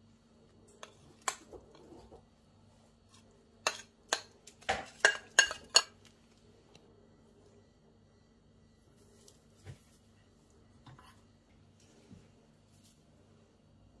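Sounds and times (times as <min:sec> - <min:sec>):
metal spoon clinking on plate: 0:03.6 - 0:06.0.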